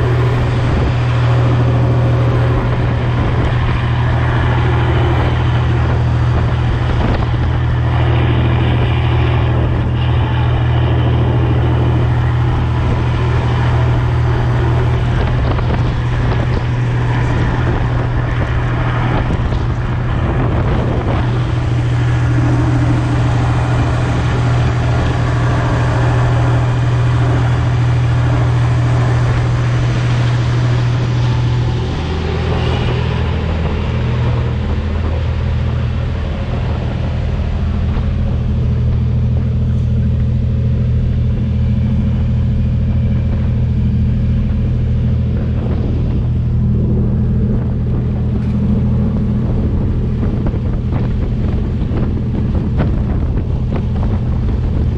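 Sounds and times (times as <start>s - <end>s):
marine diesel engine droning: 0.0s - 54.9s
water rushing past hull: 0.0s - 54.9s
wind on microphone: 0.0s - 54.9s.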